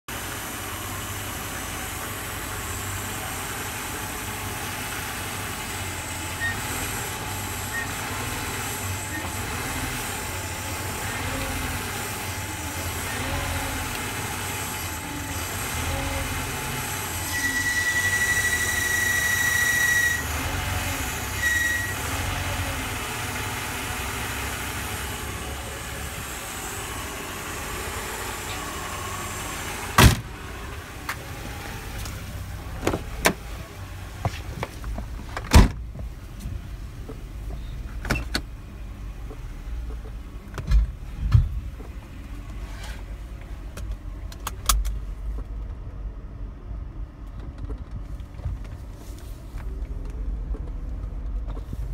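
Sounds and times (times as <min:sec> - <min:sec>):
high steady whine: 0:00.1 - 0:34.7
car engine idling: 0:00.1 - 0:51.9.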